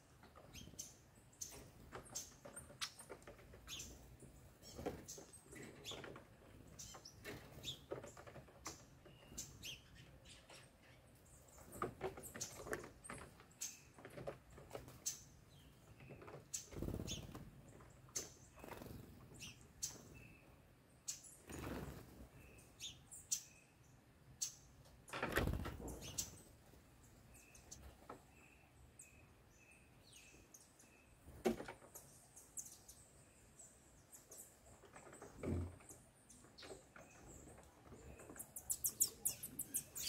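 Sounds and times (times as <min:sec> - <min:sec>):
small birds chirping: 0:00.0 - 0:40.0
feet and beaks tapping on roof: 0:00.1 - 0:10.8, 0:11.5 - 0:20.1.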